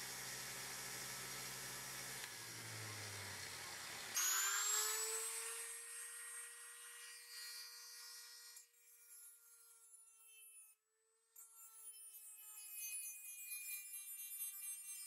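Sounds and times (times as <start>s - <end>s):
polishing wheel humming: 0.0s - 5.5s
rotary tool whining: 0.0s - 7.3s.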